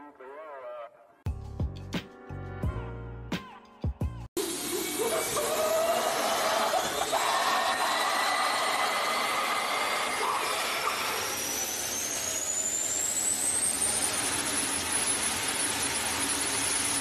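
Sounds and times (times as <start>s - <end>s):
jet engine whine spooling up: 4.4s - 17.0s.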